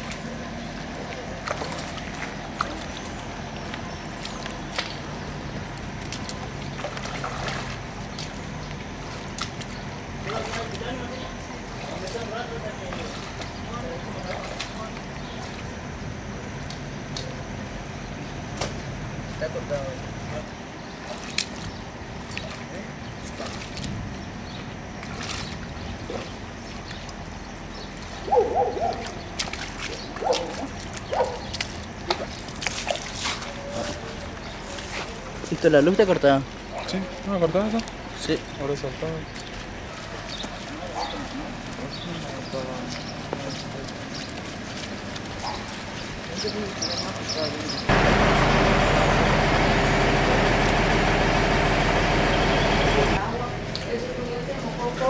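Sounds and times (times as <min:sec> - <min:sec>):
footsteps wading through water: 0:00.0 - 0:55.0
water splashing and sloshing: 0:00.0 - 0:55.0.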